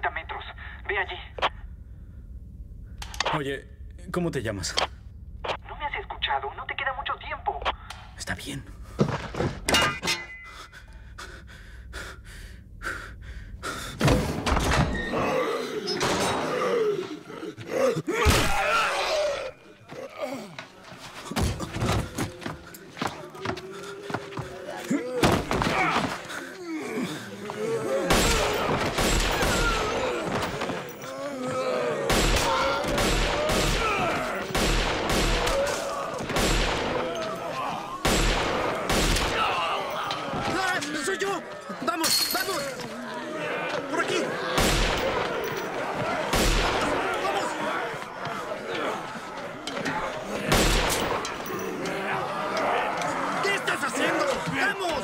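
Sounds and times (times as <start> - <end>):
man breathing hard: 10.4 - 14.0
pistol shots: 34.5 - 35.6, 38.0 - 39.4.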